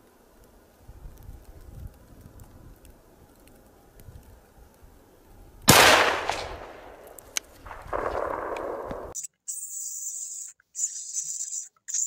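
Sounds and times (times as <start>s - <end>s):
rifle shot: 5.7s - 9.2s.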